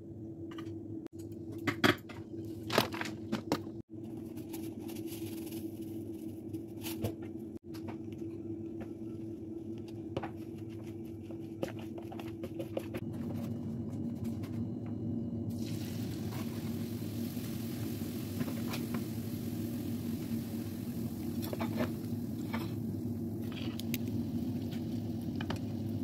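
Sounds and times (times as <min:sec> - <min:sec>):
steady low hum: 0:00.0 - 0:26.0
sliced shallots rustling in bowl: 0:04.1 - 0:06.9.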